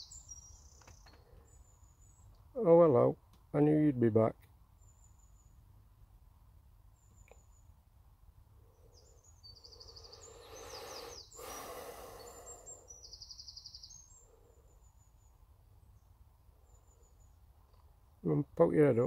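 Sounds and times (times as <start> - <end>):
faint birdsong trills and chirps: 0.0 - 19.0
person breathing: 9.7 - 13.0.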